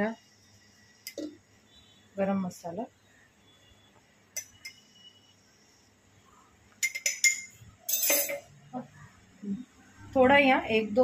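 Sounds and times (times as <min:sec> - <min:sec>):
metal spoon clinking on glass jar: 0:06.8 - 0:08.5.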